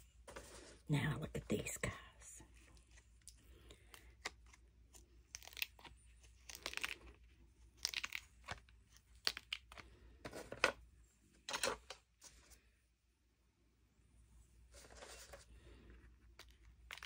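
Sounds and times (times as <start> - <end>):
silicone mold crackling and tearing: 3.9 - 9.9.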